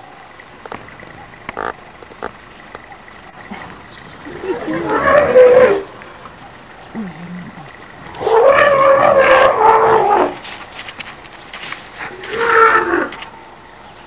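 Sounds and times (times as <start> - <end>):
elephant trumpeting: 1.5 - 2.4, 3.4 - 6.0, 8.2 - 10.5, 12.0 - 13.2.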